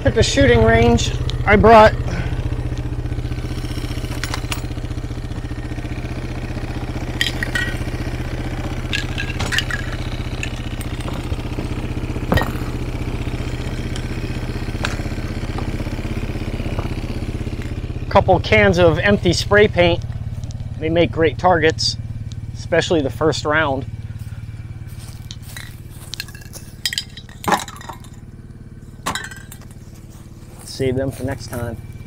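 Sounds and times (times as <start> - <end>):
atv engine idling: 0.0 - 32.0
spray cans clicking and clanking: 7.2 - 7.8, 8.9 - 11.4, 25.3 - 28.2.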